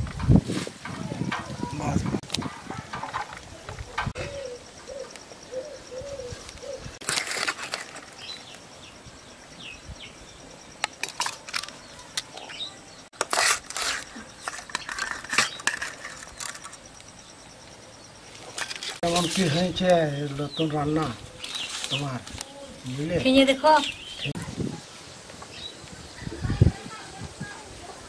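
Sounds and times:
faint bird chirps: 0:03.8 - 0:07.0
bird cooing: 0:03.9 - 0:07.0.

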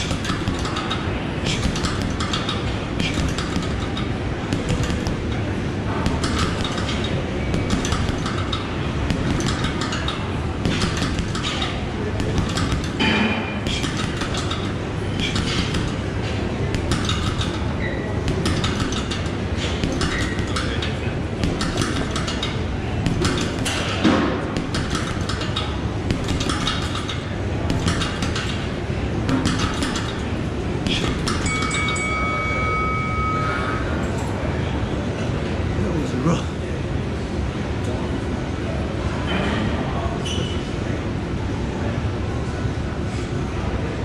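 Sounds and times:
gloves punching heavy bag: 0:00.0 - 0:30.2, 0:30.8 - 0:31.7
low background hum: 0:00.0 - 0:44.0.

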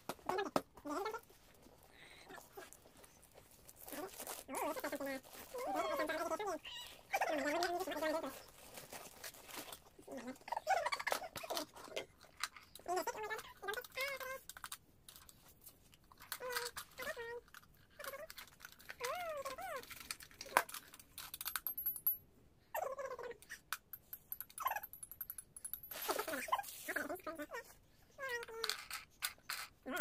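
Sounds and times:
wrapping paper rustling: 0:02.6 - 0:06.4, 0:07.6 - 0:10.0.

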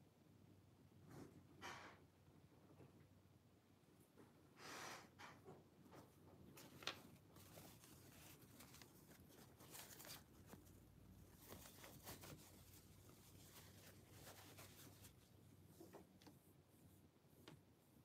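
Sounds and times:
paper tissue rustling: 0:06.5 - 0:17.4.

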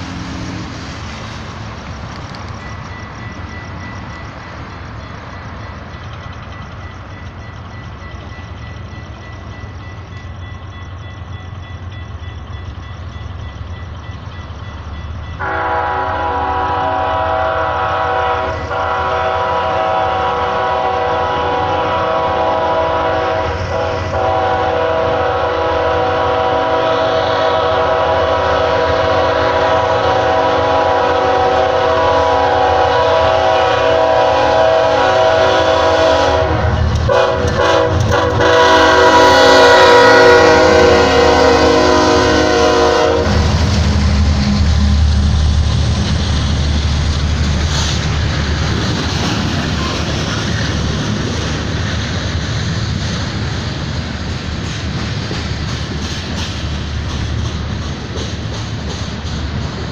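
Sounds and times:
low train rumble: 0:00.0 - 0:59.9
train air horn blast: 0:15.4 - 0:45.7.

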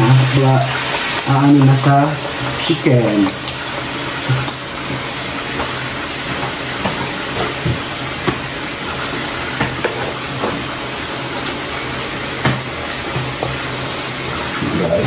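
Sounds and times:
chicken sizzling in a pan: 0:00.0 - 0:15.0.

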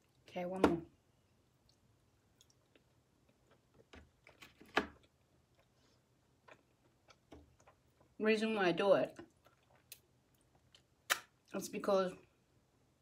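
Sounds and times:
person chewing food: 0:01.4 - 0:04.4, 0:05.0 - 0:08.2, 0:09.2 - 0:11.2.

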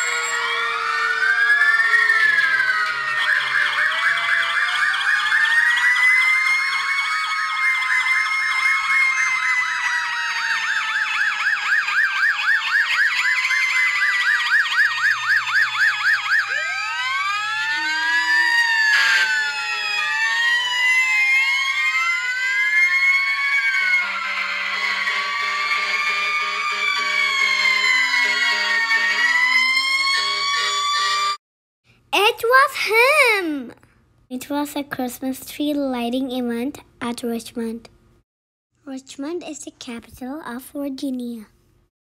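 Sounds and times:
fire engine sirens wailing: 0:00.0 - 0:31.4.

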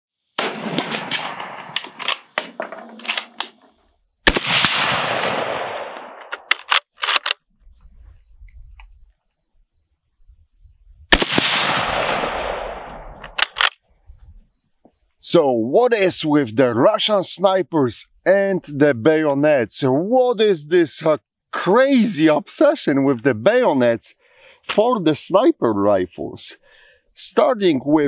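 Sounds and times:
rifle shots echoing: 0:00.4 - 0:03.6, 0:04.2 - 0:07.2, 0:11.1 - 0:13.7
clicks and rattles: 0:01.2 - 0:03.8
rifle bolt clicks: 0:05.7 - 0:07.4, 0:13.2 - 0:13.8.

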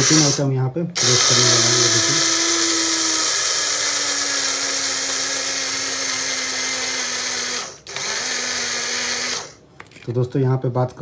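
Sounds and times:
electric spice grinder whining: 0:01.0 - 0:09.6.

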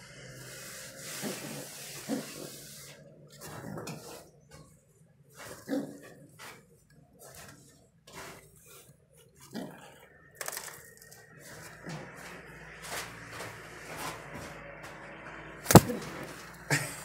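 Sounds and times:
pigeon grunting: 0:01.1 - 0:04.2, 0:05.4 - 0:06.4, 0:09.4 - 0:10.2, 0:15.7 - 0:16.3.

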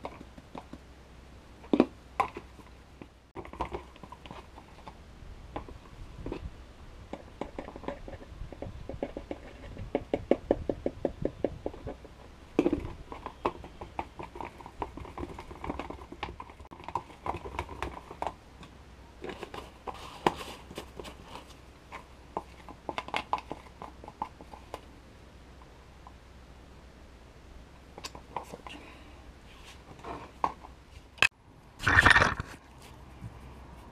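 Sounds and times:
stick scraping and clicking in plastic cup: 0:07.1 - 0:18.4, 0:31.8 - 0:32.6.

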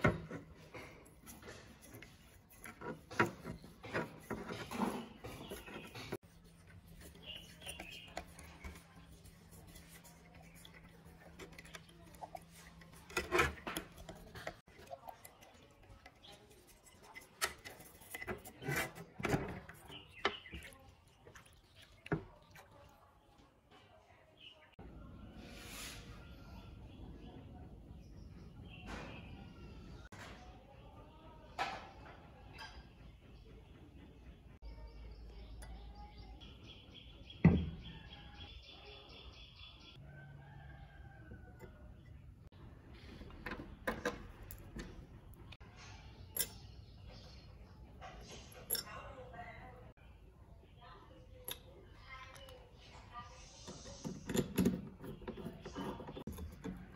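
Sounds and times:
toothbrush scrubbing glass: 0:00.0 - 0:23.0
water movement: 0:00.0 - 0:23.9.

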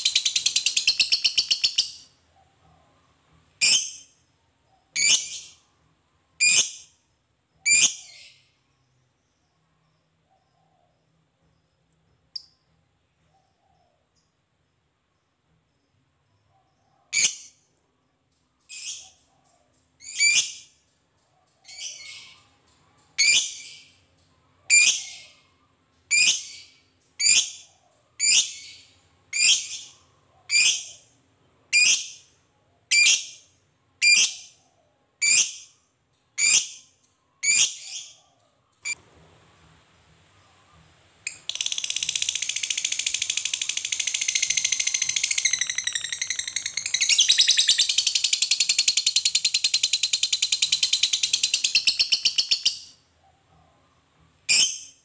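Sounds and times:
rapid shrill bird chatter: 0:41.3 - 0:52.8
lovebird shrill calls: 0:41.3 - 0:52.9.

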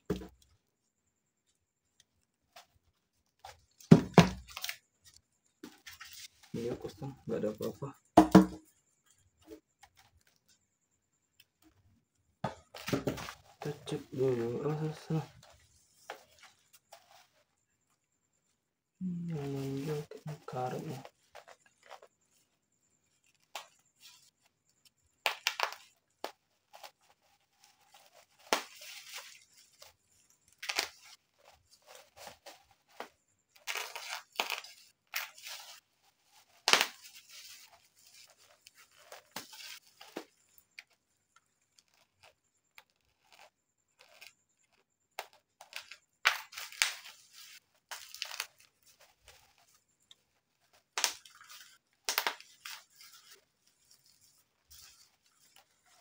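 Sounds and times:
bubble wrap crackling and tearing: 0:25.3 - 0:41.0, 0:41.6 - 0:56.0.

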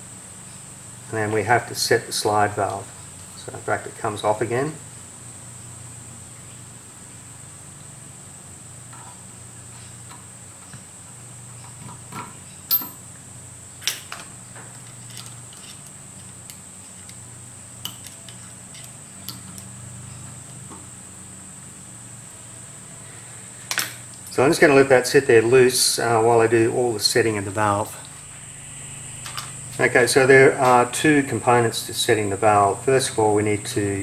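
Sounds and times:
small metal parts clinking: 0:12.7 - 0:13.0, 0:13.9 - 0:16.3
low hum: 0:19.8 - 0:34.0.

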